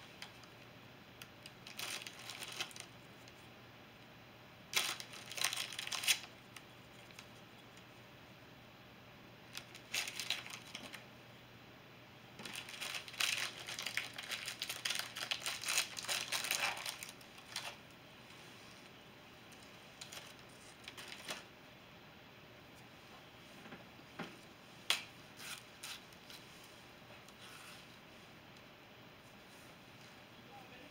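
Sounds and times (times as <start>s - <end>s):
foil cookie packet crinkling: 1.4s - 3.4s, 4.7s - 7.3s, 9.5s - 11.0s, 12.4s - 17.8s, 20.0s - 21.5s.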